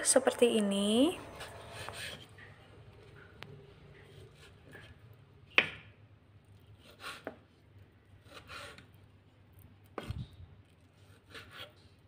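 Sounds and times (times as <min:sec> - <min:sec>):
knife scraping cut: 0:01.3 - 0:02.4, 0:06.8 - 0:07.4, 0:08.2 - 0:08.9, 0:11.0 - 0:11.8
knife cutting raw chicken: 0:04.0 - 0:05.9, 0:06.7 - 0:07.5, 0:08.2 - 0:09.0, 0:09.8 - 0:12.0.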